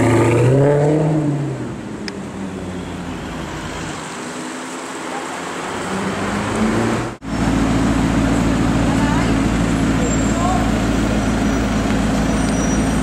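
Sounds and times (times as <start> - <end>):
car engine idling: 7.2 - 13.0.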